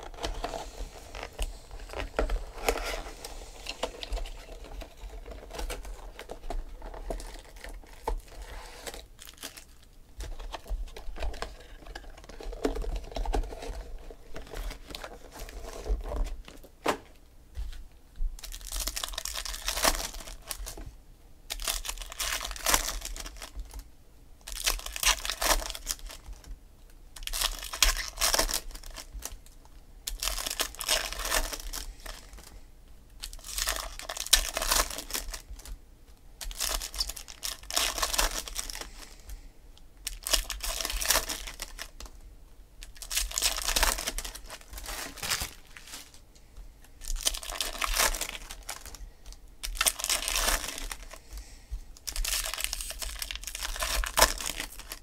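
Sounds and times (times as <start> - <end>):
foil wrappers tearing and crinkling: 0.0 - 16.6, 18.4 - 20.8, 21.5 - 23.8, 24.5 - 26.3, 27.2 - 29.4, 30.1 - 32.5, 33.2 - 35.7, 36.4 - 39.2, 40.0 - 42.0, 42.8 - 46.2, 47.0 - 49.0, 49.6 - 51.2, 52.0 - 55.0.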